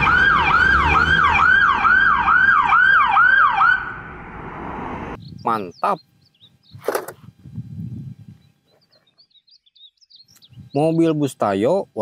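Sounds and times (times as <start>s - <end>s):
police siren yelping: 0.0s - 4.1s
road noise: 0.0s - 6.1s.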